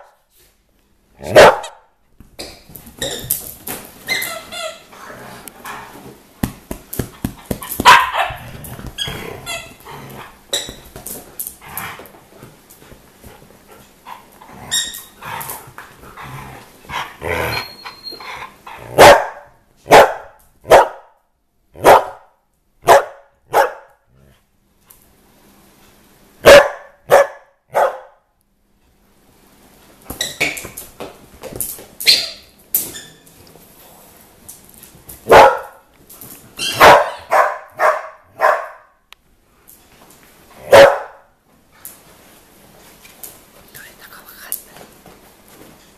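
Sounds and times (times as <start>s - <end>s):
dogs barking: 1.2s - 1.9s, 7.6s - 8.6s, 18.9s - 21.1s, 21.8s - 24.0s, 26.4s - 28.2s, 35.2s - 35.8s, 36.6s - 38.9s, 40.6s - 41.3s
squeaky toy squeaking: 4.1s - 4.9s.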